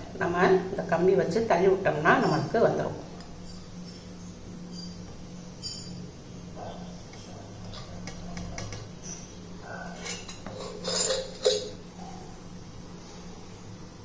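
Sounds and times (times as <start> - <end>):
sharp ringing clink: 3.4 - 6.1
metal tube scraping ceramic plate: 9.9 - 11.8.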